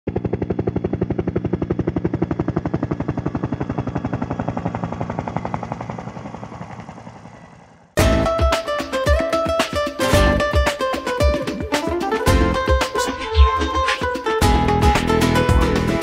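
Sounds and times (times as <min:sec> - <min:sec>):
helicopter rotor chopping: 0:00.1 - 0:15.8.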